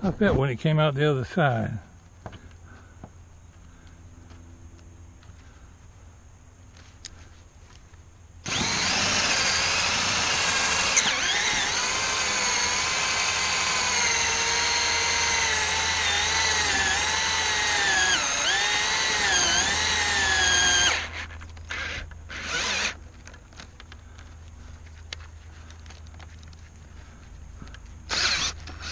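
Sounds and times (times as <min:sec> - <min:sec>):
drill cutting into wood: 0:08.4 - 0:23.0, 0:28.1 - 0:28.9.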